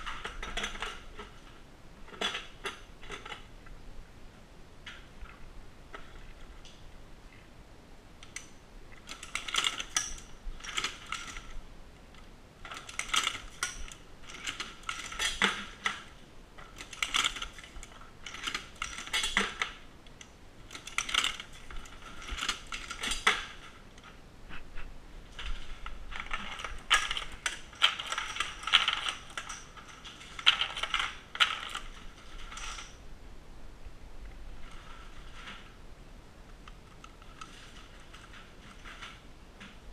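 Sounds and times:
reloading press metal clicks: 8.2 - 11.6, 12.6 - 23.7, 26.1 - 33.0.

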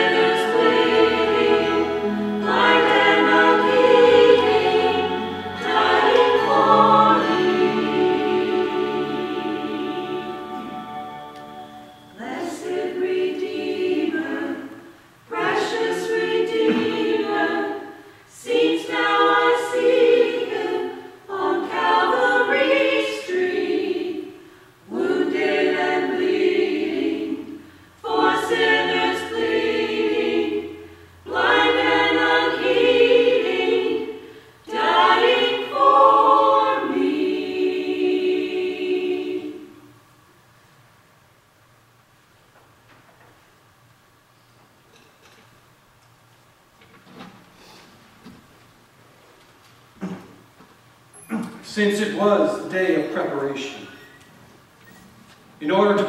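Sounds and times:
church choir singing: 0.0 - 40.1.

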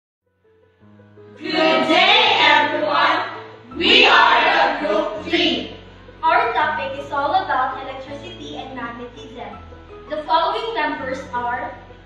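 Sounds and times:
background music: 0.3 - 12.0
voices speaking in unison: 1.4 - 8.5.

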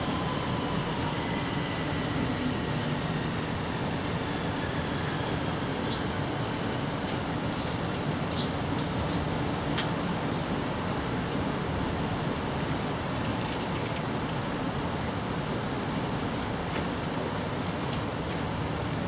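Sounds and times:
steady rain hiss: 0.0 - 19.0
raindrop ticks: 4.8 - 11.6, 12.6 - 14.4, 15.9 - 19.0.

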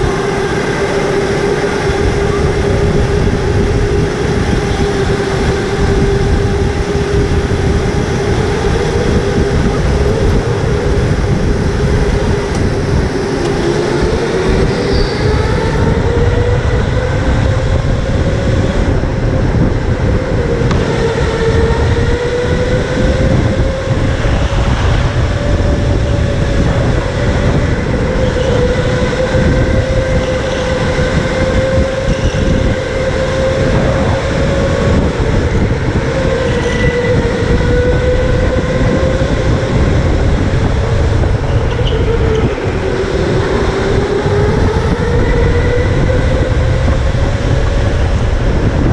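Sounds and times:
electric go-kart motor whining: 0.0 - 48.9
low rumble of road and wind: 0.0 - 48.9.

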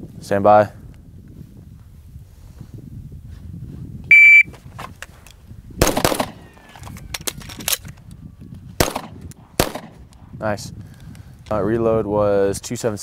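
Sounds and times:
electronic shot timer beep: 4.1 - 4.5
handgun shots: 5.8 - 6.4, 8.8 - 10.0.

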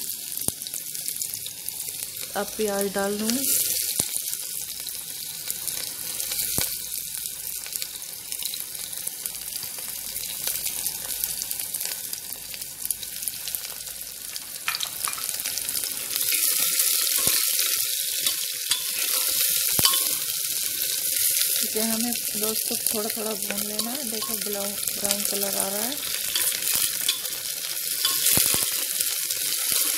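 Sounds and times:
onions sizzling in hot oil: 0.0 - 29.9
metal ladle stirring pan: 17.1 - 20.4, 23.3 - 29.9.

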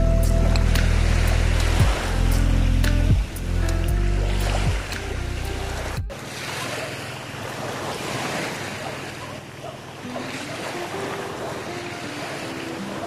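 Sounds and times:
background music: 0.0 - 6.1
small waves washing onto sand: 0.4 - 13.0.

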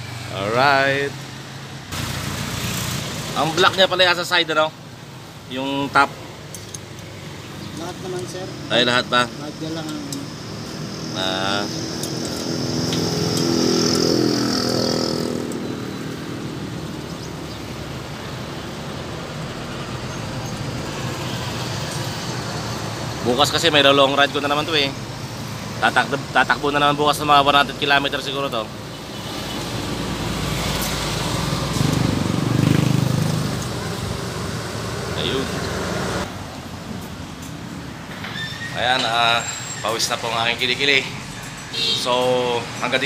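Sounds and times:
single-cylinder engine humming: 6.2 - 27.5, 28.6 - 38.1.

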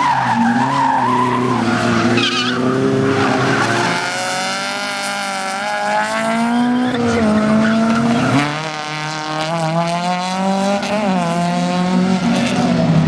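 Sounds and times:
tyre squeal: 0.0 - 4.2
car engines revving hard: 0.0 - 13.0.

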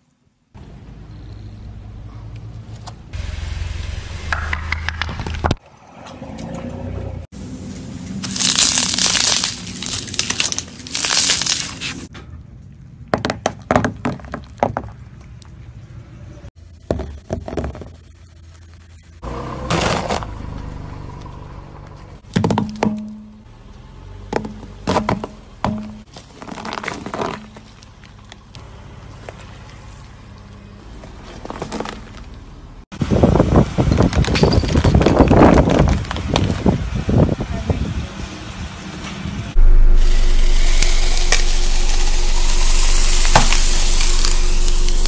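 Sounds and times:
objects cracking under car tire: 8.2 - 12.1, 24.3 - 28.6, 31.0 - 32.5, 33.9 - 36.8
packing peanuts crunching under tire: 8.2 - 12.1, 26.0 - 28.6, 31.0 - 32.4, 33.9 - 36.8, 41.1 - 45.0.

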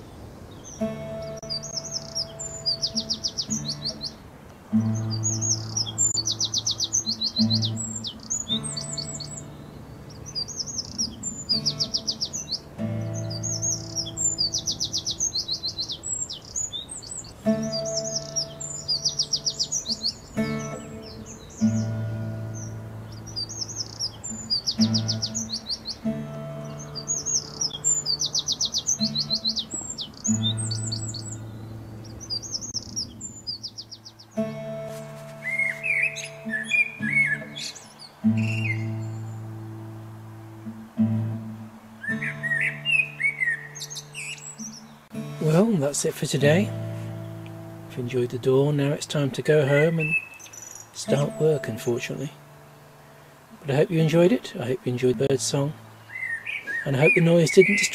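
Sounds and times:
birds chirping: 0.0 - 57.9
slow low musical notes: 0.8 - 4.1, 11.2 - 15.5, 17.4 - 33.4, 34.2 - 49.4, 51.0 - 56.1.

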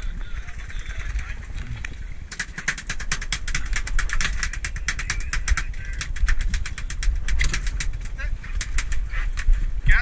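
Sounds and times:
boat engine rumble: 0.0 - 2.6
rapid sharp clicks: 2.3 - 9.1.

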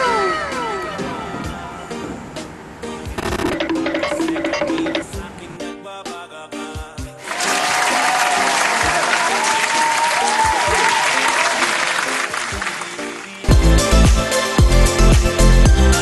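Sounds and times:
music: 0.0 - 16.0
electronic dance track: 3.2 - 5.3
crowd applause: 7.2 - 13.4.

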